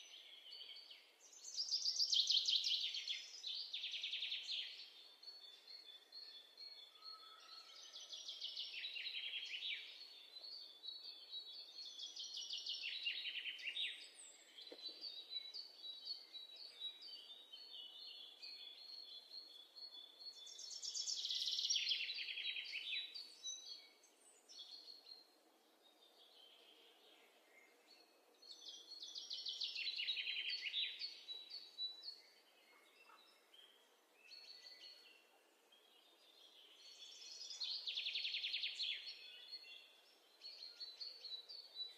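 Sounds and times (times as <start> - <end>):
bird trilling song: 27.6 - 35.2.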